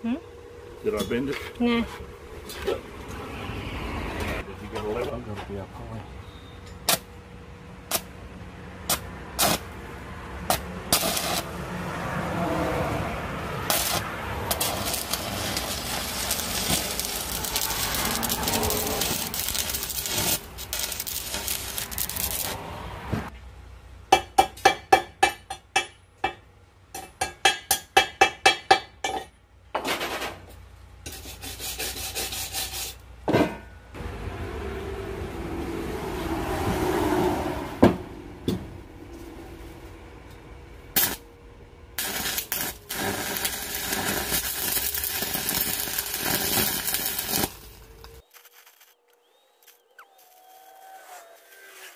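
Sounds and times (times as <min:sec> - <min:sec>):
scraping steel: 0:13.6 - 0:22.6.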